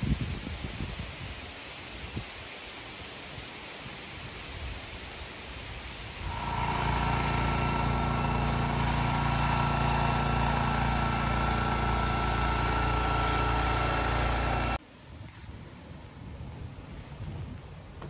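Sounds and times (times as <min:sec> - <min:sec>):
small engine humming and whining: 0:06.2 - 0:14.8.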